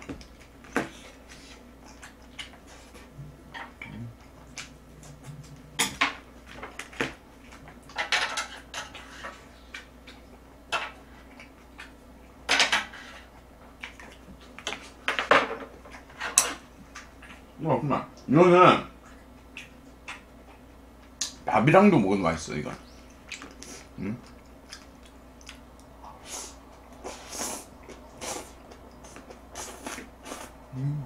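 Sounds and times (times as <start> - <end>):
chewing: 0.0 - 8.0, 13.2 - 15.0, 19.0 - 21.4, 23.0 - 30.7.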